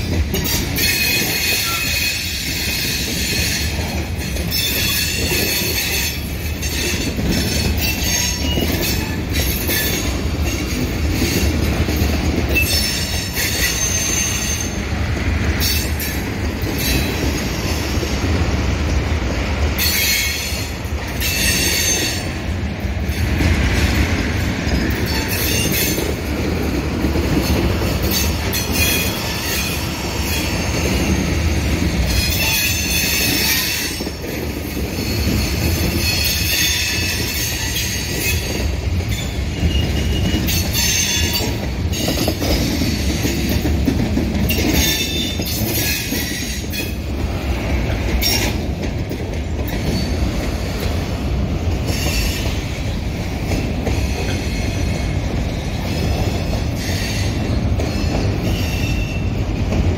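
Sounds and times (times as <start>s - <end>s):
train wheels rumbling on rails: 0.0s - 59.9s
high-pitched wheel squeal: 0.8s - 3.6s.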